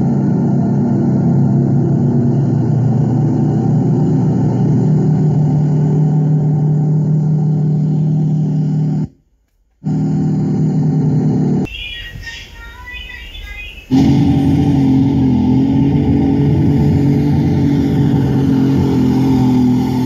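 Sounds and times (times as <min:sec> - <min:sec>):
bulldozer diesel engine running: 0:00.0 - 0:09.2, 0:09.8 - 0:20.0.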